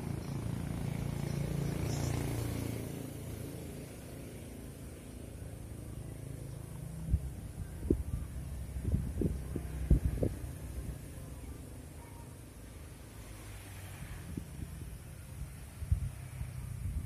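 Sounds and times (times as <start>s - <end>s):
passing vehicle engine rumble: 0.0s - 17.0s
wind buffeting microphone: 6.9s - 11.0s, 14.1s - 17.0s.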